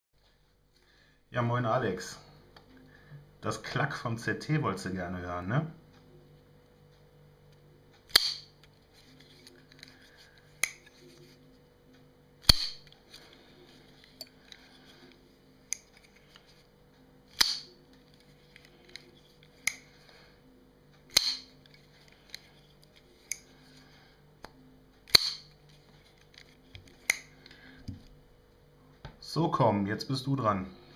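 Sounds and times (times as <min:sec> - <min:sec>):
knife blade snapping open: 0:08.1 - 0:08.5, 0:10.6 - 0:10.9, 0:12.4 - 0:12.8, 0:17.4 - 0:17.7, 0:21.1 - 0:21.5, 0:25.1 - 0:25.5
knife closing clicks: 0:10.6 - 0:10.9.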